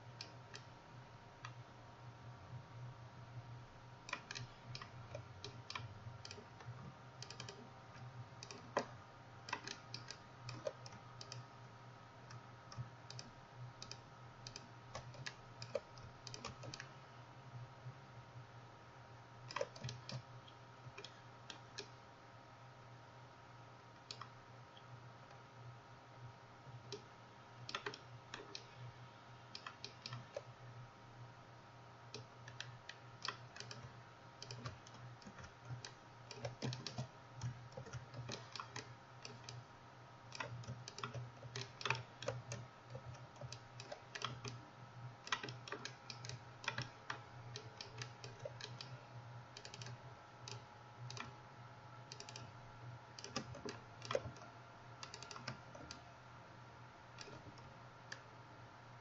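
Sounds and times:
mouse buttons clicking: 4.1s - 7.6s, 32.2s - 39.6s, 45.3s - 49.0s, 49.6s - 51.3s, 52.1s - 52.5s, 53.2s - 56.0s, 57.2s - 58.2s
keyboard keys clicking: 7.2s - 7.6s.

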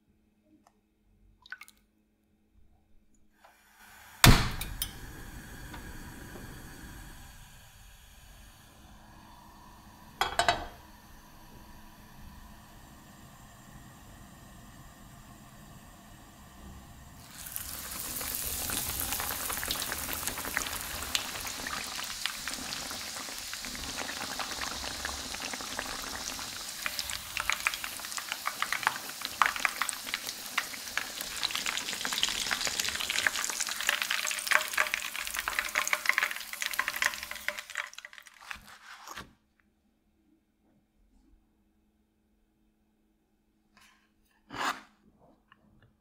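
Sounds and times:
schnitzel sizzling in oil: 17.2s - 38.7s.

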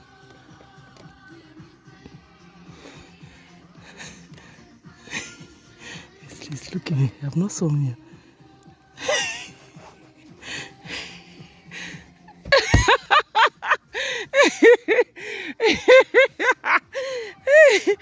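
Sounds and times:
soft breathy sounds: 8.0s - 12.3s
laughter in quick bursts: 9.0s - 10.0s, 12.3s - 18.0s.

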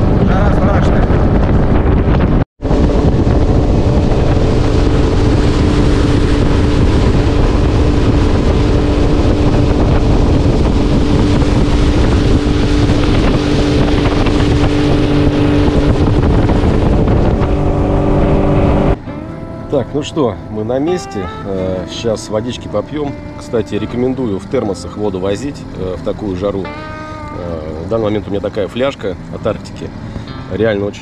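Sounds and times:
wind on microphone: 0.0s - 19.7s
outboard motor running: 0.0s - 30.7s
rushing water: 2.6s - 31.0s.

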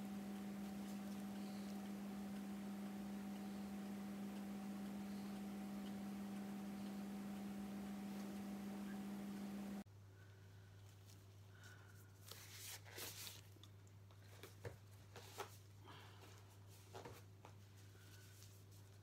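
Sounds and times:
steady low hum: 0.0s - 9.9s
faint rustles and clicks: 10.8s - 19.0s.

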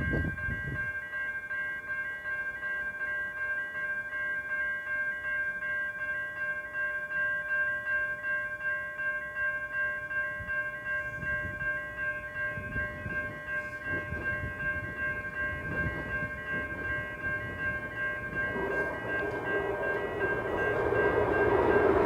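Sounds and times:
level crossing bells ringing: 0.0s - 22.0s
train rumbling: 11.1s - 22.0s.

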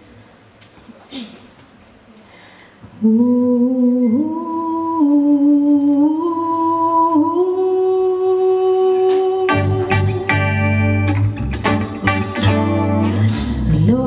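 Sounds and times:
woman singing unaccompanied: 3.0s - 11.1s, 12.4s - 14.0s
band led by guitar: 9.5s - 14.0s.

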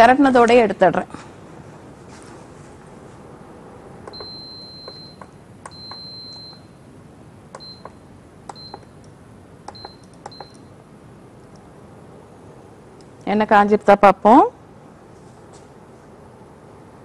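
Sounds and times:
cooktop control beeps: 4.1s - 6.8s, 7.6s - 9.0s, 9.7s - 10.7s.

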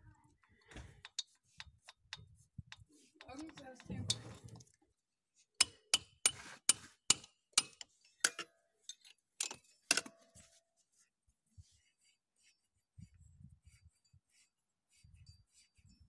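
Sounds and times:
metal tools clicking and clinking: 7.2s - 10.3s.

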